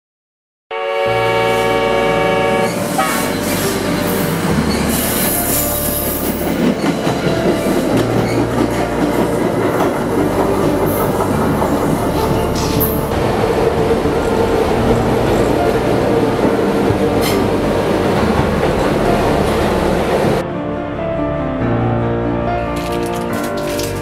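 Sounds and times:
train horn: 0.7s - 3.9s
train wheels clattering on track: 2.7s - 20.4s.

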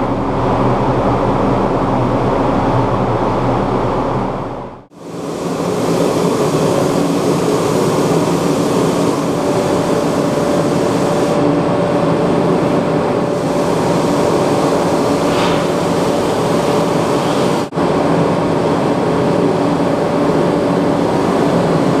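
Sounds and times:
ventilation fans rushing air: 0.0s - 22.0s
spray gun hissing: 5.0s - 11.6s, 12.6s - 17.7s.

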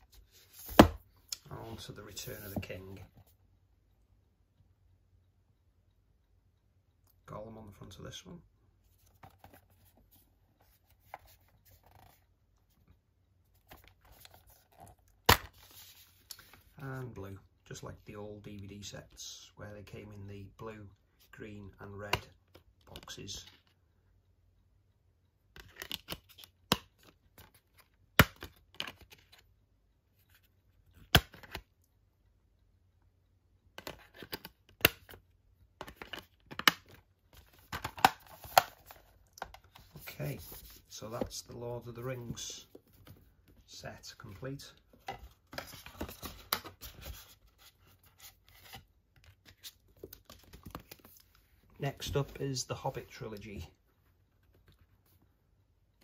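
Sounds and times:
plastic clicks and snaps of discs: 25.6s - 29.4s, 31.0s - 31.7s, 33.7s - 35.2s, 35.8s - 40.0s, 48.6s - 51.4s.

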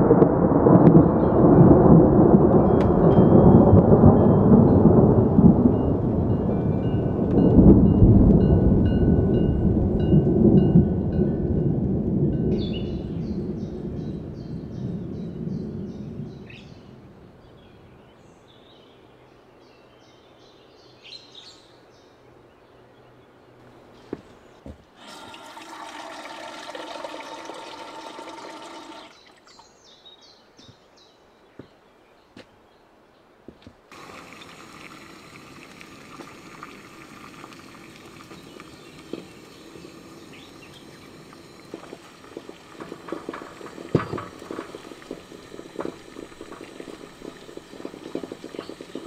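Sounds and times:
water pouring into vessel: 25.0s - 29.6s, 33.9s - 49.0s
gas stove hissing: 33.9s - 49.0s.

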